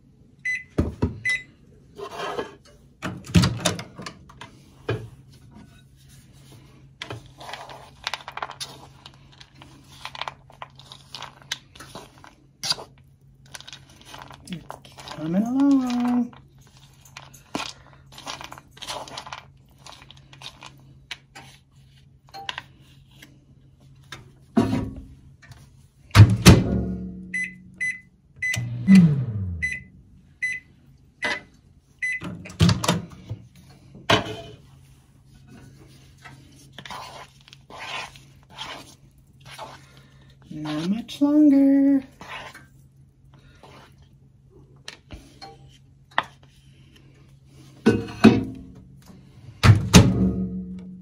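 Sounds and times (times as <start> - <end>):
short high microwave beeps: 0.4 - 1.5, 27.3 - 31.4.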